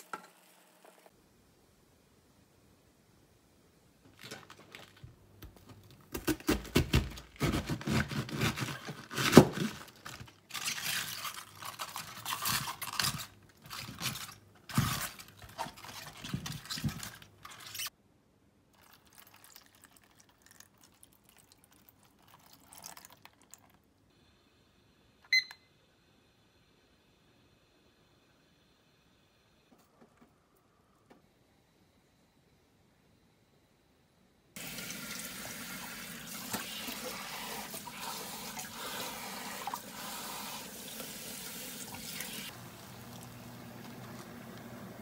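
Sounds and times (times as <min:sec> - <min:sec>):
kitchen timer beep: 0:25.3 - 0:25.7.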